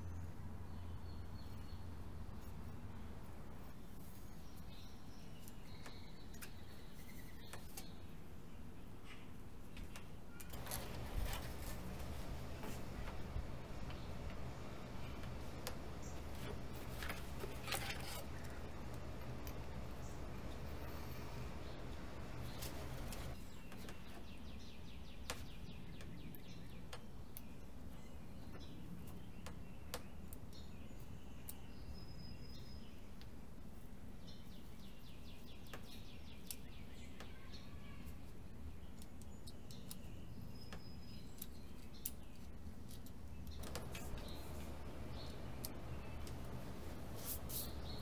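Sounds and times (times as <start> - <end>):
small birds chirping: 0.0 - 48.0
low background rumble: 10.6 - 23.4, 43.5 - 48.0.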